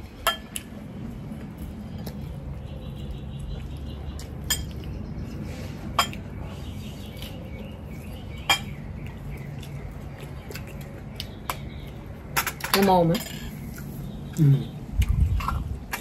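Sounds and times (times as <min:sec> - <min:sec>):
steady low hum: 0:00.0 - 0:16.0
utensils clinking against dishes: 0:04.4 - 0:04.9, 0:05.9 - 0:06.4, 0:08.4 - 0:08.8, 0:12.3 - 0:13.6.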